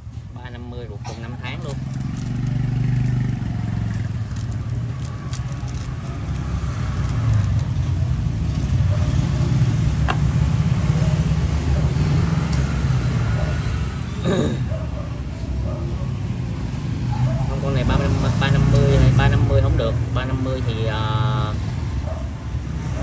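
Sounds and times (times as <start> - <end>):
motor vehicle engine rumbling: 0.0 - 16.6.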